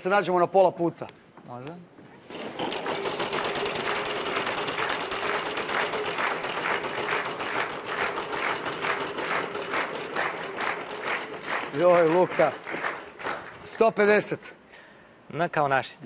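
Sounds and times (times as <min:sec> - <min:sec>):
prize wheel ticking: 0:03.0 - 0:13.2.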